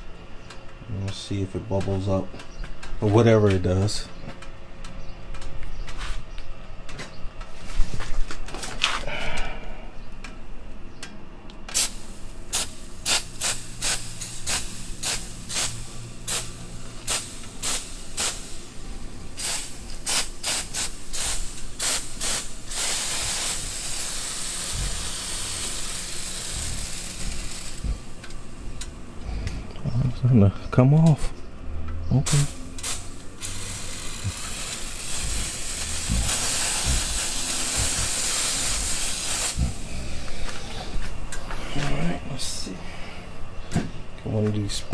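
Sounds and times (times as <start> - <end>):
aerosol can spraying: 11.8 - 18.6, 19.4 - 27.8, 32.3 - 39.8.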